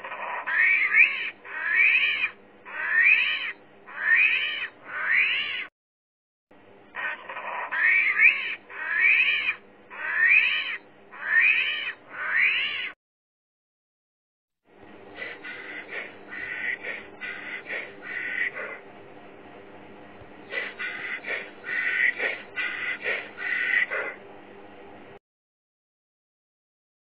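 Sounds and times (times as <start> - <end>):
armadillo squealing: 0.0 - 5.7, 7.0 - 13.0, 15.2 - 18.8, 20.5 - 24.2.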